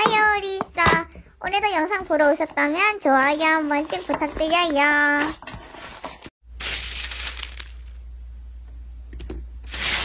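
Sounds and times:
paper crackling: 5.2s - 8.0s
paper ripping: 5.2s - 8.0s, 9.7s - 10.0s.

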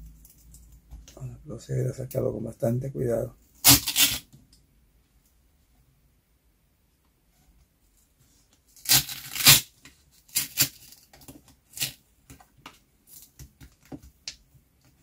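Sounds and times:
plastic film peeling off: 3.6s - 4.3s, 8.8s - 11.1s.

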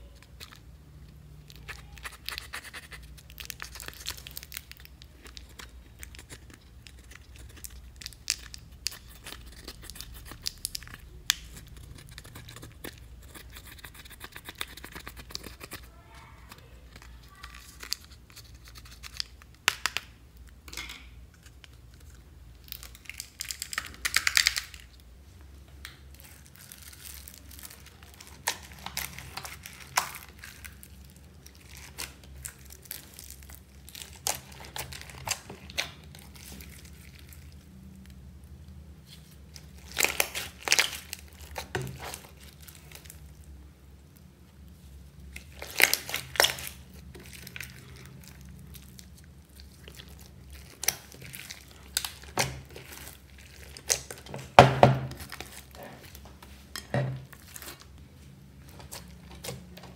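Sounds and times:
hands squishing slime: 0.0s - 25.0s, 25.8s - 43.5s, 44.6s - 56.6s
fingers crumbling eyeshadow powder: 0.2s - 20.2s.

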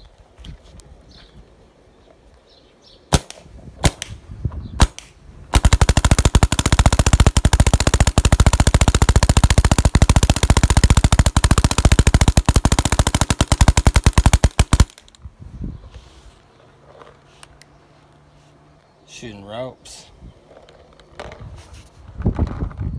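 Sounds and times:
paintball marker firing: 3.1s - 4.2s, 4.8s - 15.2s.

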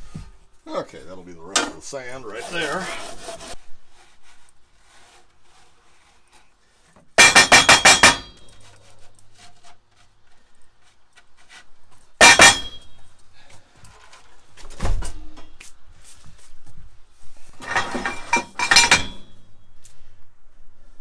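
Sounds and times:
sand scraping: 1.8s - 6.8s.

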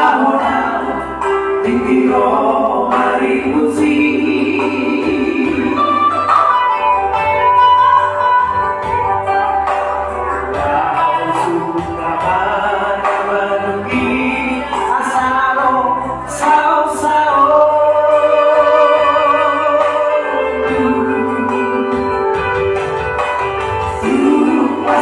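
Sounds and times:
men singing in harmony: 0.0s - 6.4s, 10.4s - 22.6s, 23.8s - 25.0s
live band accompaniment: 0.0s - 25.0s.

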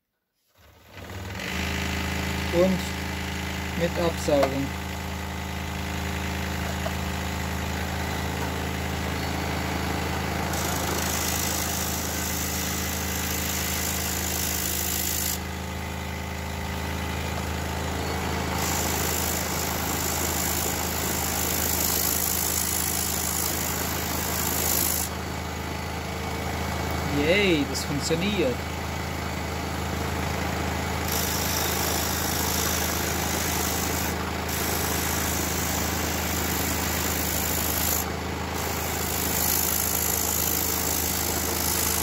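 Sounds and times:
scroll saw humming: 0.7s - 5.0s, 5.6s - 15.6s, 17.0s - 25.2s, 31.0s - 42.0s.

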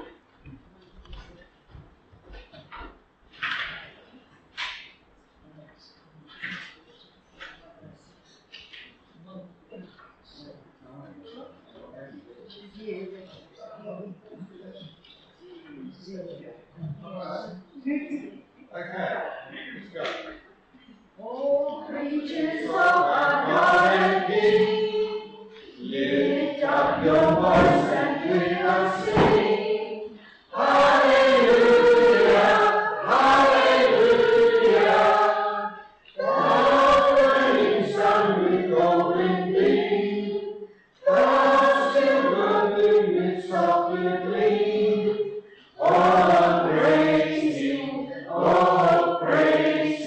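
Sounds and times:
group singing worship song: 21.2s - 50.0s.

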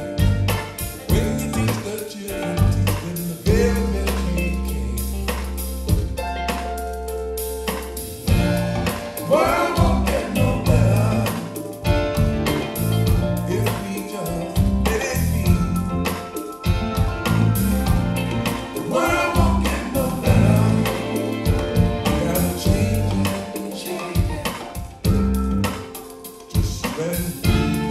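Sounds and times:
song over loudspeakers: 8.9s - 12.1s, 13.5s - 25.1s, 26.6s - 27.9s.

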